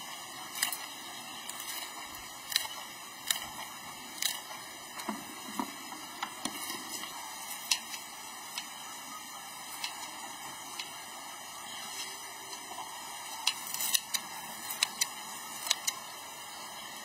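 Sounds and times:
scissors snipping: 13.5s - 16.0s.

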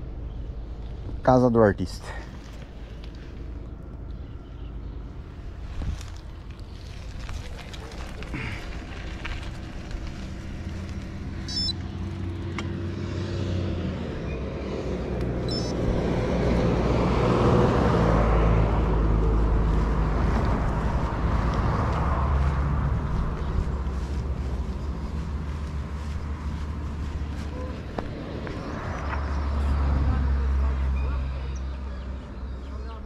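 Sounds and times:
car driving by: 7.8s - 32.2s.

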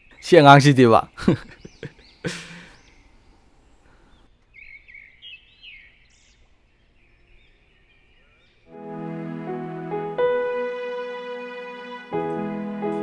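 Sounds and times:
small birds chirping: 0.0s - 8.7s.

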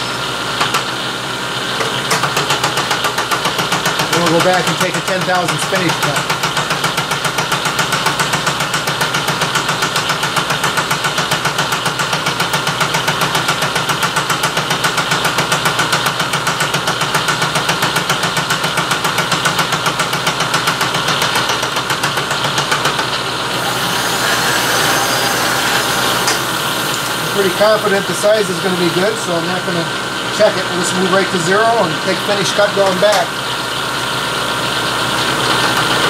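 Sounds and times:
milling machine cutting steel: 23.1s - 33.6s.

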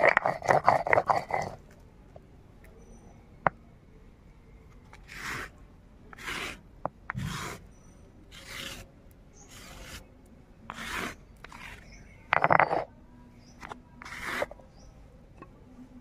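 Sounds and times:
wooden scraper rasping on stone: 0.0s - 1.6s, 5.0s - 5.5s, 6.1s - 7.7s, 8.3s - 10.1s, 10.7s - 12.9s, 13.6s - 14.6s.

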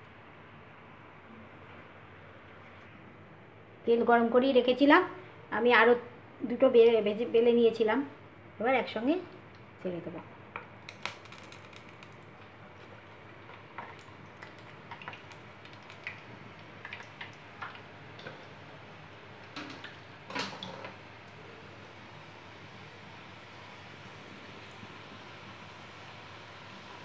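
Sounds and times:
dough deep-frying in hot oil: 8.6s - 27.0s
sharp pops and clicks: 10.6s - 12.5s, 13.7s - 18.4s.

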